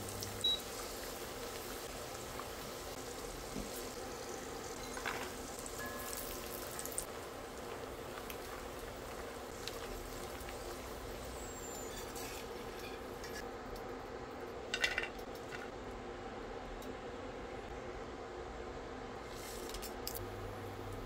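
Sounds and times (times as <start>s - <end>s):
nuts frying in a pot: 0.0s - 13.9s, 14.6s - 15.8s.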